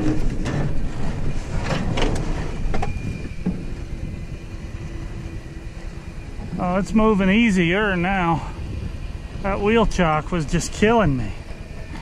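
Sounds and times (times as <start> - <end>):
metal clunks and creaks: 0.0 - 4.2
winch low rumble: 0.0 - 12.0.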